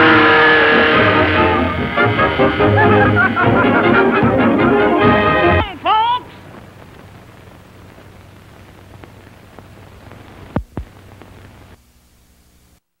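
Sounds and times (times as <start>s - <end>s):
film soundtrack hiss: 0.0s - 12.9s
sharp pops: 6.4s - 11.7s.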